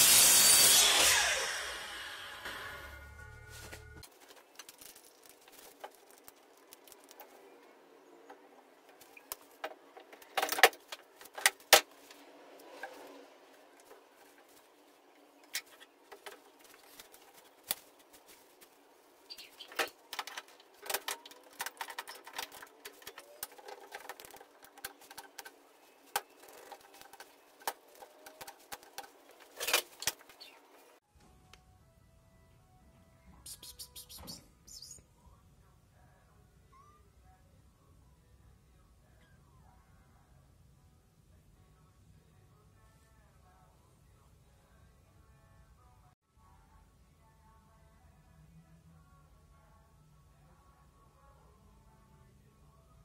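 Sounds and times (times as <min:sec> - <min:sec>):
plastic sheet crinkling: 0:04.0 - 0:07.3.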